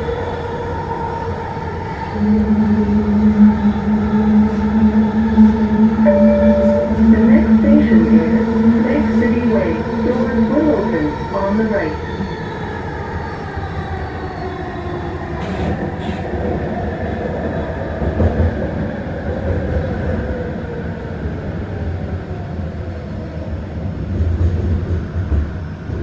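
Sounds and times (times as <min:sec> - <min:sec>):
train car rumbling: 0:01.6 - 0:12.9.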